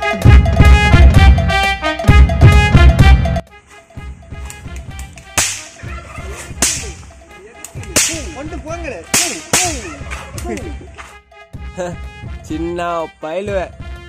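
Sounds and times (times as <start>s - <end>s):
whip-crack sound effects: 5.1s - 5.8s, 6.4s - 7.0s, 7.8s - 8.4s, 9.1s - 10.3s.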